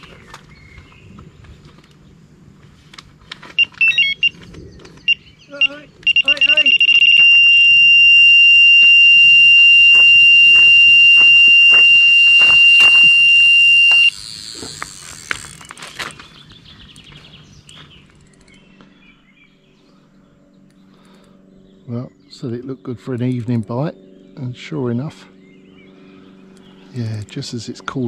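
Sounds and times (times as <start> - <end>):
bite alarm continuous high tone: 5.1 - 14.6.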